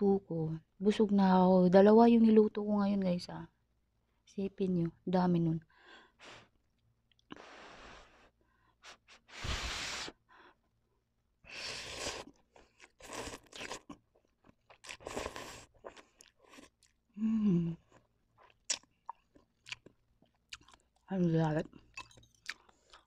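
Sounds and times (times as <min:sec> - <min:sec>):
person slurping noodles: 0:09.4 - 0:10.2, 0:11.5 - 0:13.9
person humming: 0:17.2 - 0:17.8
wet chewing: 0:18.4 - 0:21.1, 0:21.9 - 0:23.0.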